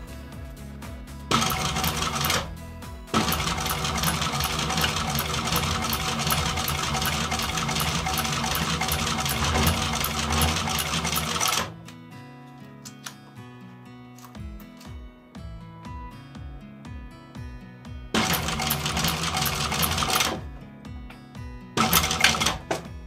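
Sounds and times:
sewing machine stitching: 1.3 - 2.5, 3.1 - 11.7, 18.2 - 20.4, 21.8 - 22.8.

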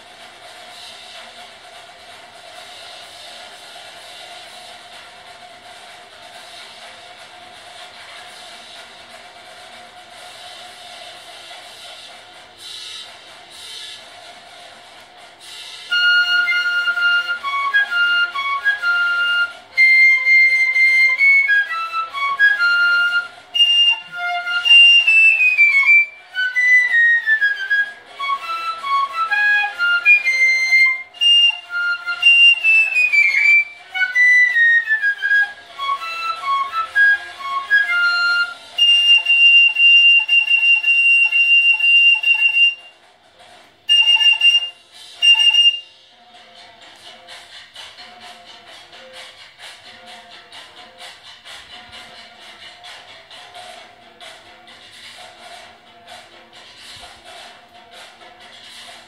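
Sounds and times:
piccolo playing a melody: 15.6 - 43.0, 43.9 - 46.1.

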